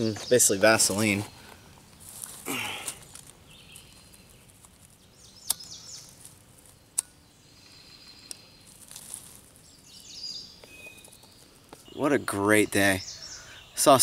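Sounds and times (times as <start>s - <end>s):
birds chirping: 0.0s - 14.0s.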